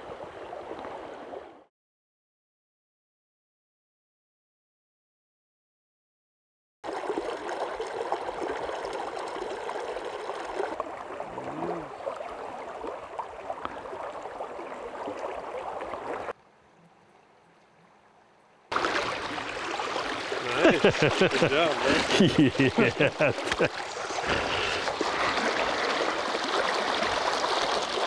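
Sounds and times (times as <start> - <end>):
river water rushing: 18.7 - 28.0.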